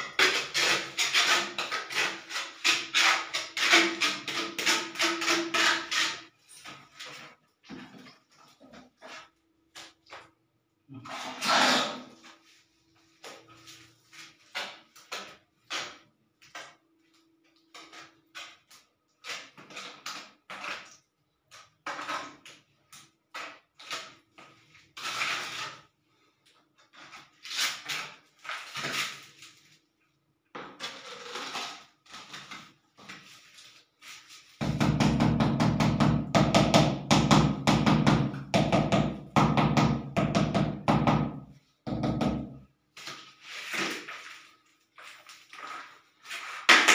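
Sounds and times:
trowel scraping and knocking: 0:00.0 - 0:07.4.

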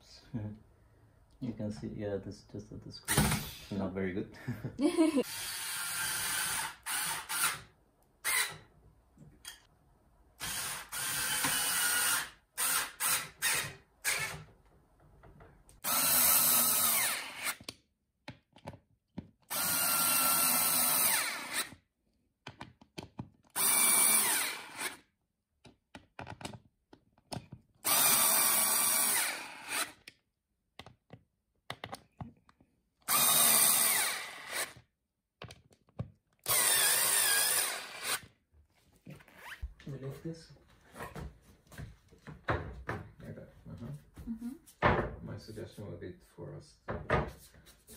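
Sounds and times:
cordless screwdriver driving screws: 0:33.1 - 0:34.8, 0:36.4 - 0:38.3.

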